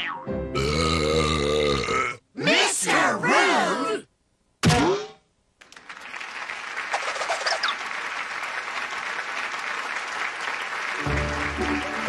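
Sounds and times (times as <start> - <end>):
cartoon hiccup sound effect: 4.6 - 5.2
audience applause: 5.6 - 12.0.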